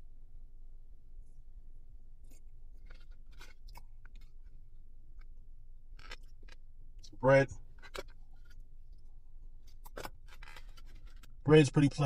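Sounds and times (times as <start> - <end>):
steady low hum: 0.0 - 12.0
person chewing fries: 2.2 - 7.1, 7.7 - 11.4
clicks and crackles handling food: 2.2 - 11.5.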